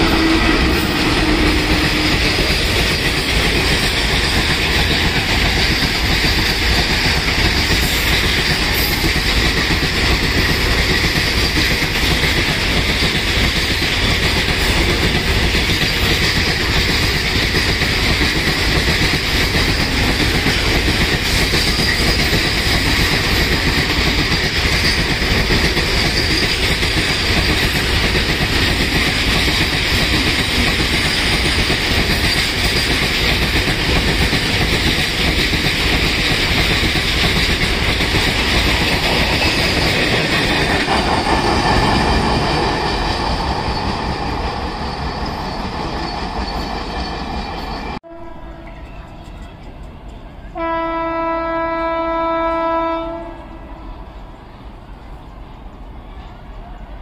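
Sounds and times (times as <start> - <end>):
train wheels rumbling on rails: 0.0 - 57.0
metallic wheel squeal: 19.3 - 23.1, 24.6 - 28.0, 43.0 - 50.5.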